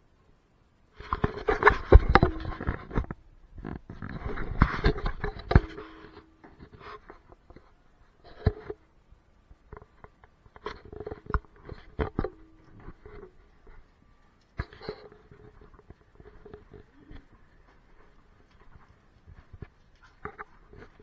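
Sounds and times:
camera handling rubbing and rustling: 1.0 - 7.7.

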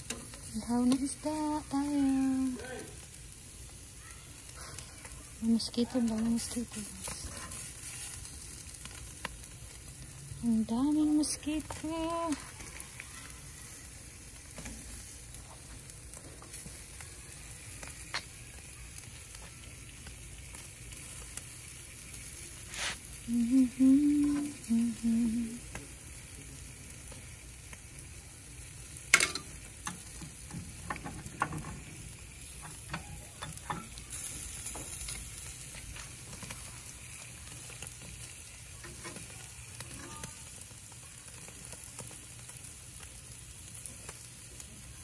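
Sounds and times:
fish sizzling on charcoal grill: 0.0 - 45.0
person humming: 23.3 - 25.8
tongs clicking: 29.1 - 31.7, 32.6 - 34.0.

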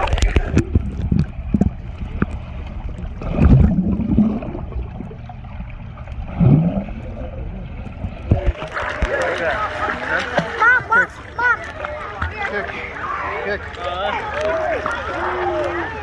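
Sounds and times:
low rumble: 0.0 - 8.5
muffled underwater bubbling: 0.0 - 11.6.

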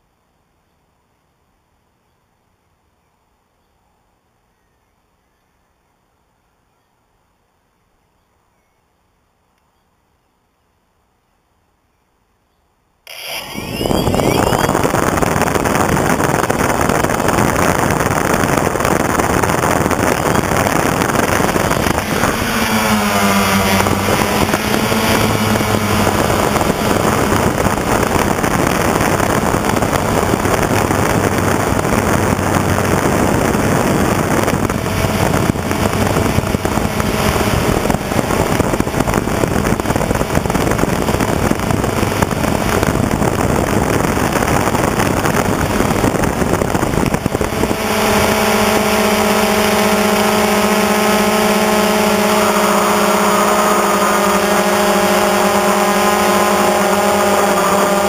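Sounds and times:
drone motor humming tones: 13.0 - 58.0
drone propellers rushing: 13.0 - 58.0.

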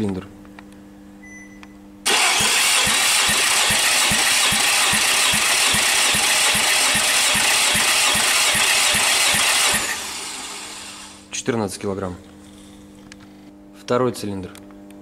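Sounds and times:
engine cranking over by starter: 2.1 - 11.2.

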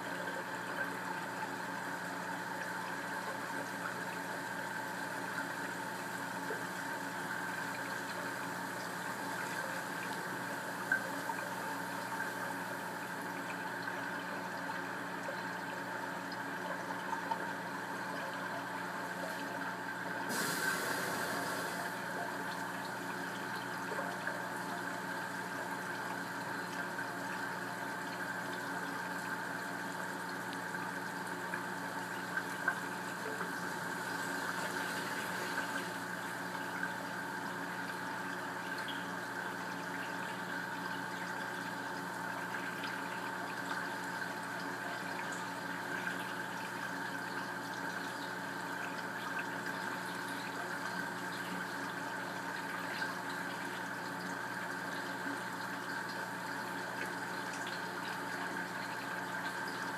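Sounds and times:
aquarium pump hum: 0.0 - 59.9
water circulating: 4.1 - 44.8.

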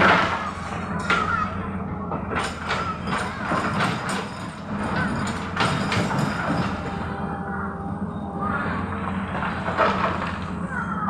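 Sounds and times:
excavator diesel engine running: 0.0 - 11.0
knocks and clanks on rocks: 2.2 - 7.0.

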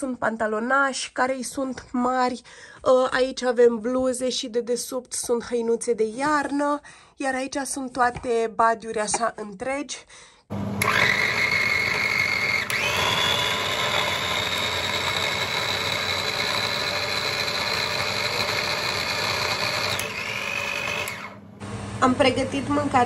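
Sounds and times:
electric food chopper whining: 10.5 - 21.7.

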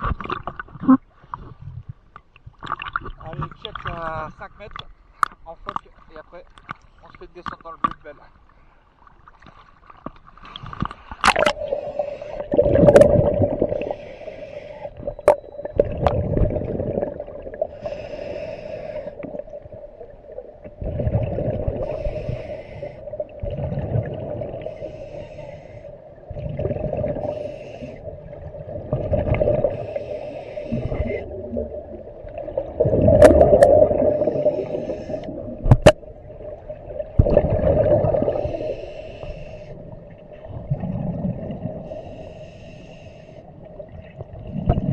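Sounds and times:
exhaled bubbles gurgling: 10.5 - 42.3, 43.5 - 44.9
diver breathing through regulator: 11.0 - 15.3, 17.6 - 19.6, 21.6 - 23.3, 24.5 - 26.2, 27.0 - 28.2, 29.4 - 31.6, 33.7 - 35.6, 38.1 - 40.0, 41.7 - 43.6.

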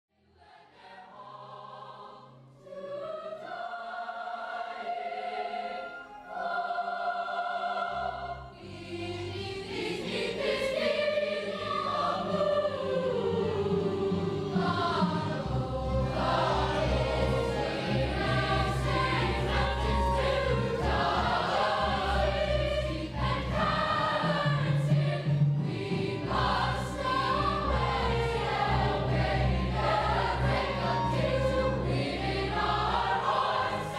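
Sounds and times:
youth chorus singing: 0.4 - 33.9
small orchestra playing: 5.4 - 33.9.

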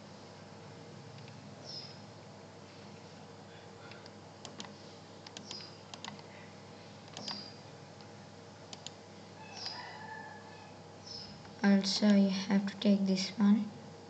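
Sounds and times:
faint steady hum: 0.0 - 14.0
mouse button clicking: 5.3 - 6.2, 7.1 - 7.5.

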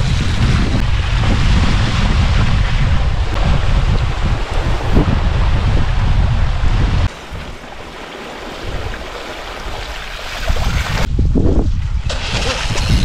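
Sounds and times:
wind on microphone: 0.0 - 13.0
bike tyres splashing through mud: 7.1 - 11.1.

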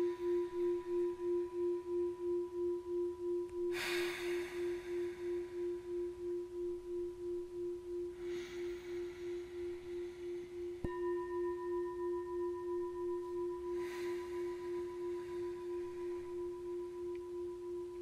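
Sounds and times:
singing bowl low wobbling tone: 0.0 - 18.0
singing bowl struck with mallet: 0.0 - 18.0.

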